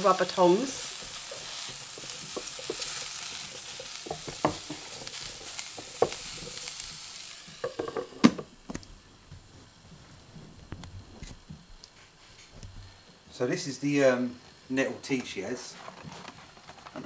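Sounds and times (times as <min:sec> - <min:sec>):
mushrooms sizzling in oil: 0:00.0 - 0:09.8.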